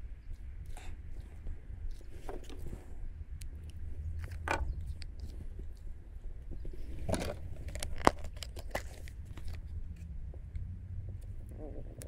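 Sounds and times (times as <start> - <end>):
low steady rumble: 0.0 - 12.0
tackle rustles and clicks: 1.3 - 10.1.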